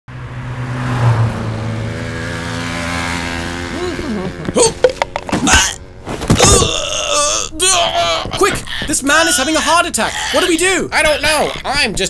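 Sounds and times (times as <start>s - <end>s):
car driving past: 0.1s - 3.8s
man's strained vocal sounds: 3.7s - 12.0s
sharp clicks and knocks: 4.8s - 5.4s.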